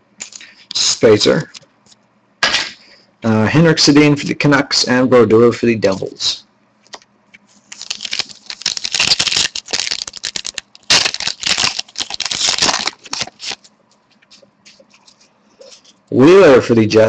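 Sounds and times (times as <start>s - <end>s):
foil wrapper crackling: 7.6s - 15.2s.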